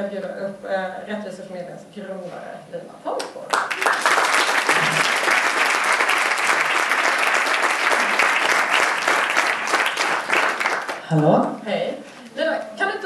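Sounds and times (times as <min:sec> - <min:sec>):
audience applause: 0:03.5 - 0:11.1.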